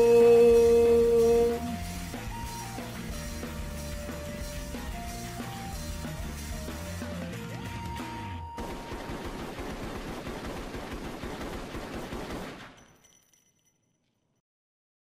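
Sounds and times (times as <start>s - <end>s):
music: 0.0s - 8.9s
rapid automatic gunfire: 8.6s - 12.9s.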